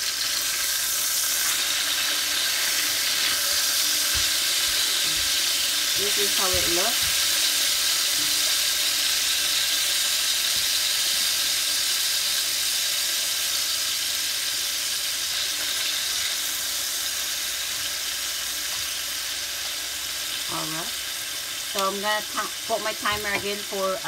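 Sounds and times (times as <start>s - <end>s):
chicken sizzling in hot oil: 0.0s - 24.0s.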